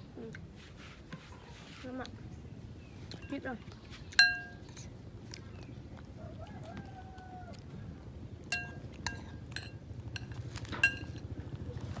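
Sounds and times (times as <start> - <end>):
metal spoon clinking on glass bowl: 4.2 - 4.6, 8.5 - 11.2.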